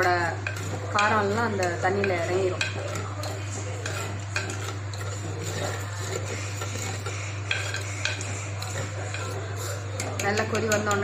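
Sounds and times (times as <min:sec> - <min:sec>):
spoon stirring boiling soup: 0:00.0 - 0:11.0
steady low hum: 0:00.0 - 0:11.0.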